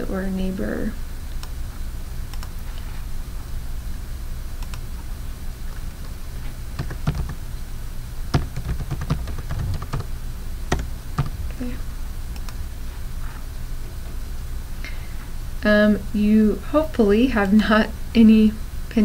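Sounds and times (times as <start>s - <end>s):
steady low hum: 0.0s - 19.0s
keyboard key clicks: 8.3s - 10.1s.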